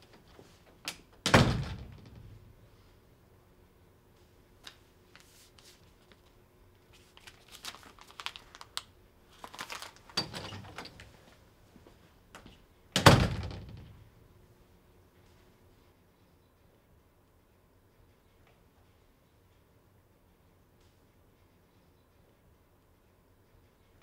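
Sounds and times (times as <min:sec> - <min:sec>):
object clicking and crinkling: 0:04.6 - 0:11.2.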